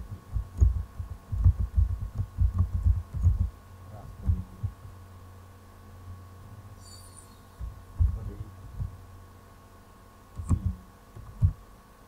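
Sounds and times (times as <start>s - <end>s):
steady low hum: 0.0s - 12.0s
keyboard keystrokes: 10.4s - 11.5s.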